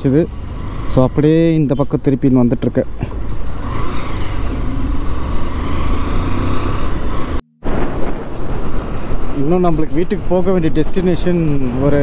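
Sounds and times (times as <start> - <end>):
motorcycle engine and road rumble: 0.0 - 12.0
wind rushing over microphone: 3.5 - 12.0.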